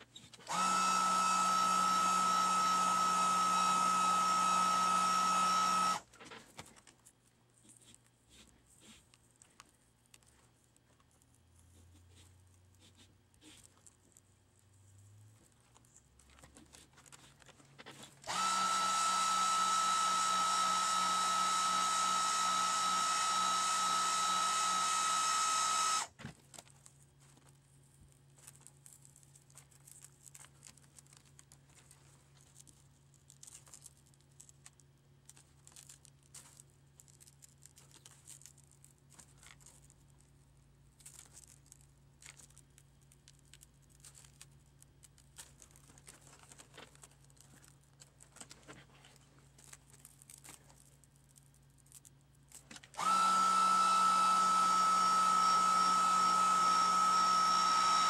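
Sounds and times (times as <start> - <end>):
electric blower motor whining: 0.4 - 6.0, 18.2 - 26.1, 53.0 - 58.0.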